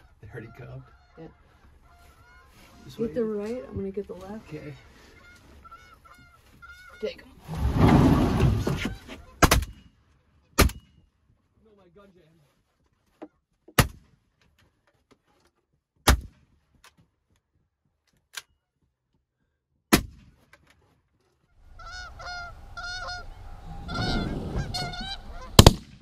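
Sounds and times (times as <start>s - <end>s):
geese honking in flight: 0.0s - 3.5s, 4.3s - 7.3s, 21.5s - 25.6s
sharp cracks: 25.5s - 26.0s
loud shotgun shot: 25.6s - 26.0s.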